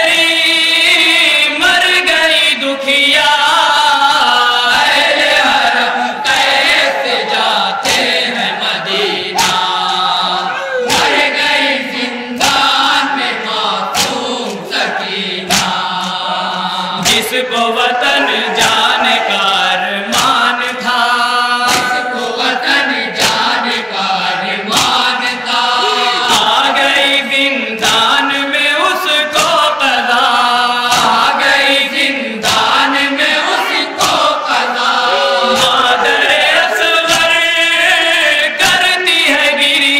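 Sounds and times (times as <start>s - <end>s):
men chanting in chorus: 0.0s - 39.9s
person reciting into microphone: 0.0s - 39.9s
hands slapping chests: 7.8s - 8.3s, 9.3s - 10.1s, 10.9s - 11.4s, 12.4s - 13.0s, 13.8s - 14.8s, 15.4s - 16.3s, 17.0s - 17.4s, 20.1s - 20.5s, 21.7s - 22.0s, 23.2s - 23.6s, 24.7s - 25.1s, 26.2s - 26.7s, 29.3s - 29.6s, 34.0s - 34.2s, 35.4s - 37.4s.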